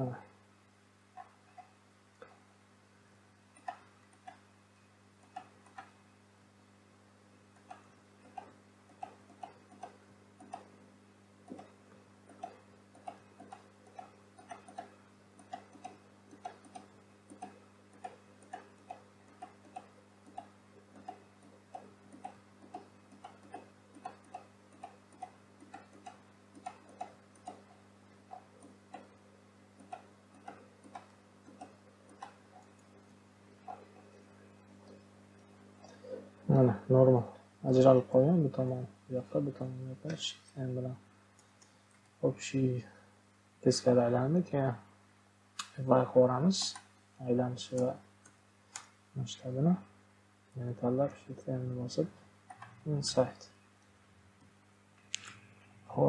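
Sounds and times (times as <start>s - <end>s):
low electrical hum: 0.0s - 56.0s
scroll wheel ticks: 1.2s - 2.4s, 3.6s - 4.4s, 5.2s - 6.0s, 7.6s - 10.7s, 11.4s - 36.2s, 46.4s - 46.9s, 47.7s - 48.9s
mouse clicks: 11.5s - 27.7s, 29.8s - 32.9s.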